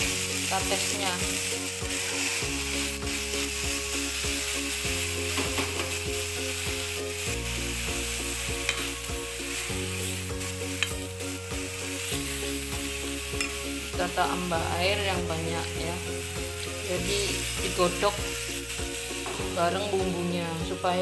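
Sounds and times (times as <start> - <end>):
papaya sizzling in hot oil: 0.0 - 21.0
metal ladle scraping a pan: 1.7 - 3.0.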